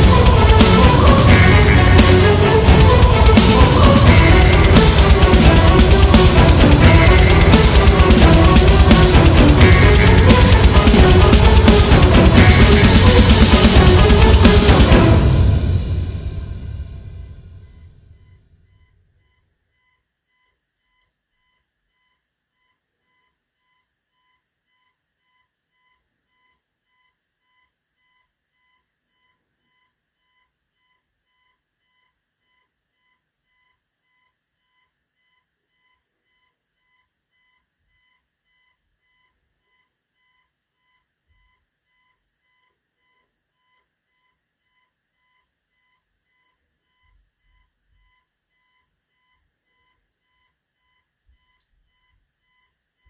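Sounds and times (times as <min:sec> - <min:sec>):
faint electronic beeping: 0:15.6 - 0:53.0.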